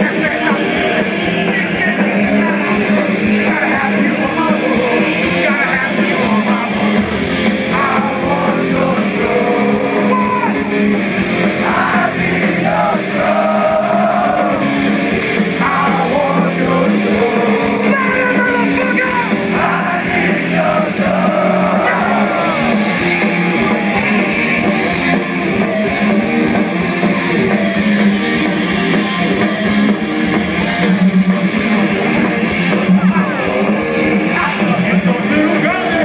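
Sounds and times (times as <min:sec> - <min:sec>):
man singing and yelling: 0:00.0 - 0:14.8, 0:15.4 - 0:22.9, 0:32.6 - 0:36.0
heavy metal band playing live: 0:00.0 - 0:36.0.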